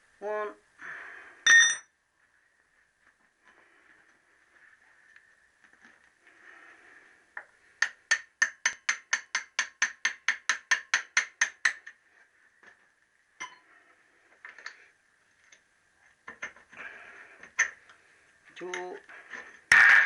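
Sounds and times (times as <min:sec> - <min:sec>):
metal clinks: 0:01.5 - 0:01.9.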